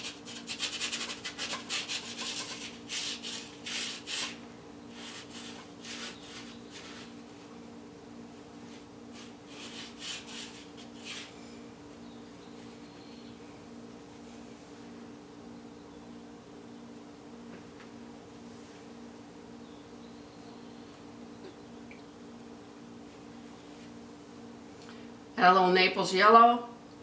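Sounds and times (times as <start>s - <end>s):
paintbrush scrubbing on canvas: 0.0s - 7.5s, 8.3s - 11.3s
steady low hum: 0.0s - 27.0s.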